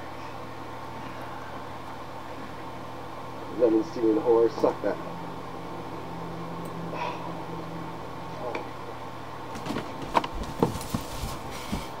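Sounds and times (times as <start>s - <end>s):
low electrical hum: 0.0s - 12.0s
rustling knocks and clicks: 9.5s - 12.0s.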